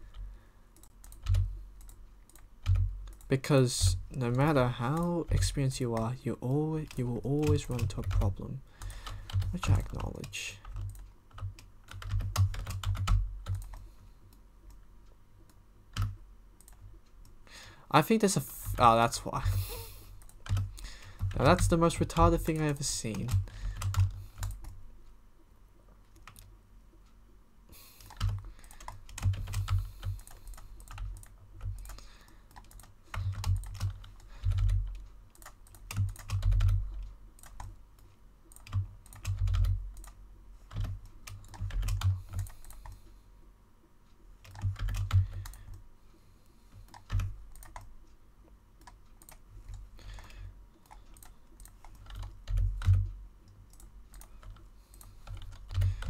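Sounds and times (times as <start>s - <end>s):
keyboard keystrokes clicking: 0.8s - 3.9s, 6.9s - 13.8s, 28.0s - 36.8s, 38.5s - 43.0s, 44.4s - 45.7s, 48.8s - 53.1s.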